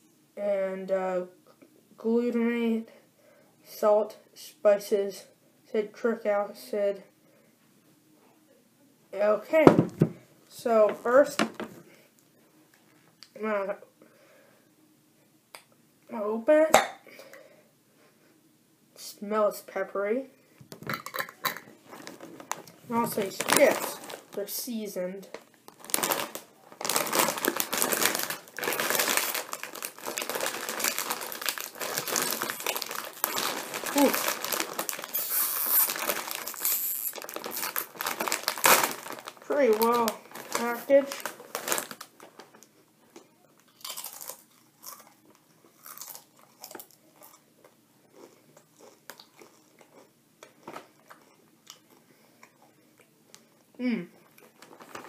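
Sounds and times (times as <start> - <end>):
plastic chip bag crinkling: 21.4 - 24.6, 25.2 - 42.8, 43.6 - 47.4, 54.3 - 55.0
chewing: 48.1 - 53.6.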